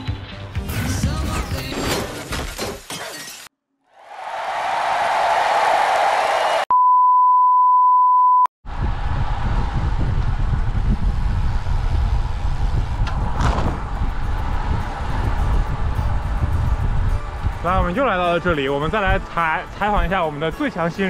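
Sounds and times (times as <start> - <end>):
electronic censor beep: 6.7 - 8.5
wind rumble on microphone: 8.7 - 19.3.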